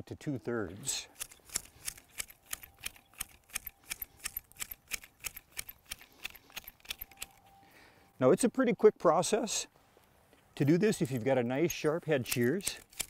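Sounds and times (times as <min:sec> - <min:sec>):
hedge shears snipping: 0:01.1 - 0:07.6, 0:11.7 - 0:13.0.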